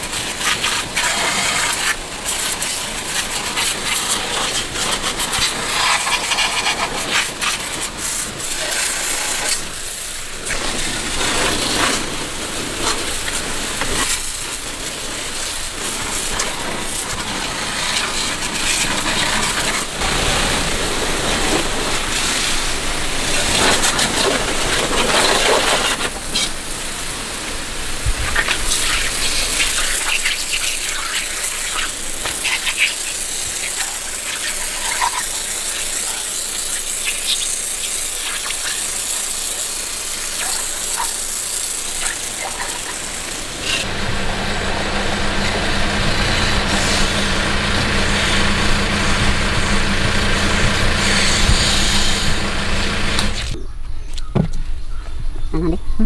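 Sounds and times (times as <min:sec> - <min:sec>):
pressure washer spraying: 0:00.0 - 0:53.6
electric motor hum: 0:26.6 - 0:53.6.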